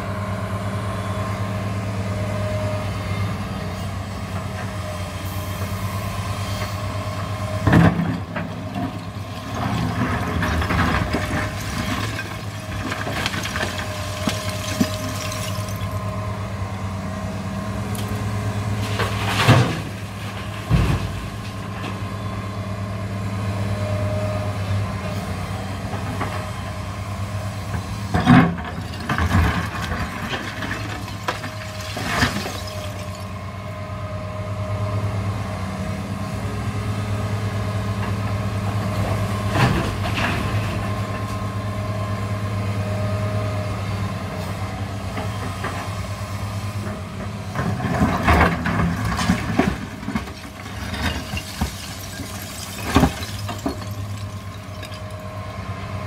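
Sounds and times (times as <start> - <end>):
excavator diesel engine running: 0.0 - 56.0
rubble crashing into truck bed: 7.8 - 16.0, 28.2 - 33.4, 47.8 - 55.3.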